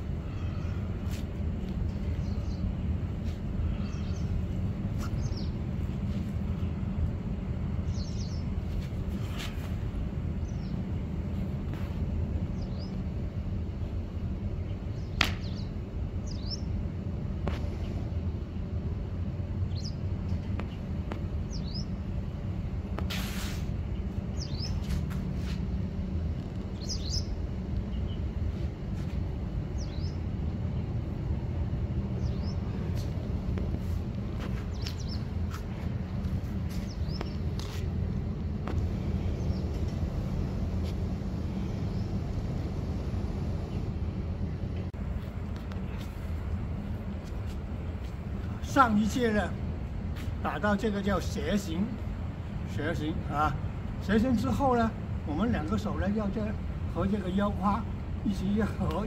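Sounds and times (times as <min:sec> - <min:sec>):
small birds chirping: 0:00.0 - 0:06.7, 0:07.7 - 0:09.6, 0:10.4 - 0:10.9, 0:11.8 - 0:13.1, 0:13.8 - 0:16.8, 0:19.6 - 0:22.4, 0:23.8 - 0:25.6, 0:26.4 - 0:31.4, 0:32.0 - 0:37.9, 0:39.2 - 0:40.1
low background rumble: 0:00.0 - 0:59.0
brief hiss: 0:23.1 - 0:23.7.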